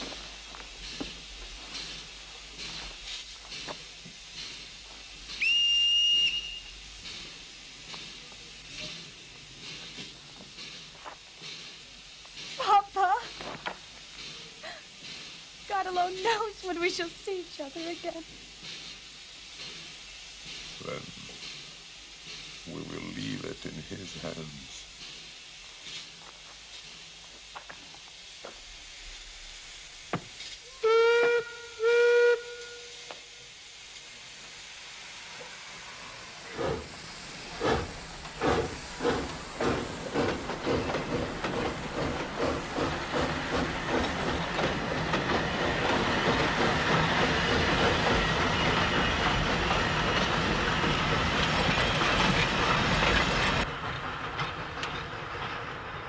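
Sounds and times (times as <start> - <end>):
steam locomotive exhaust chuffs: 0.0 - 56.0
steam locomotive whistle: 5.4 - 6.8, 30.6 - 33.6.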